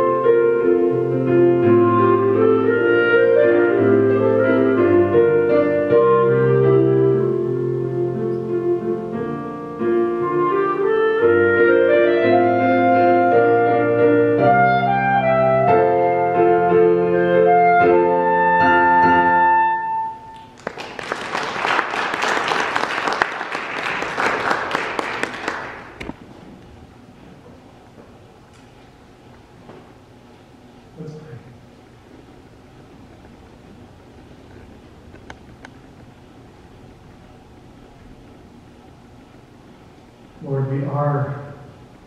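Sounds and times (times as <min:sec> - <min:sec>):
clarinet melody: 0:00.0 - 0:20.6
piano accompaniment: 0:00.0 - 0:20.6
applause: 0:20.4 - 0:26.1.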